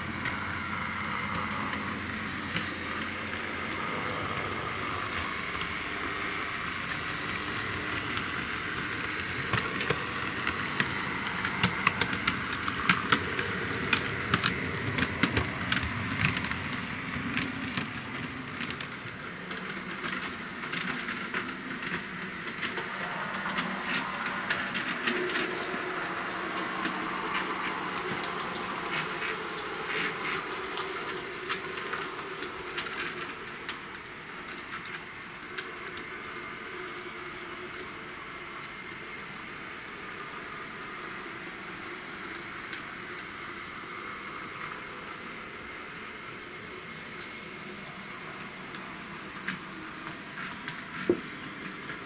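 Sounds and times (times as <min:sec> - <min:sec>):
small electric motor whine: 0:00.0 - 0:18.8
wheels clicking over rail joints: 0:00.0 - 0:37.1.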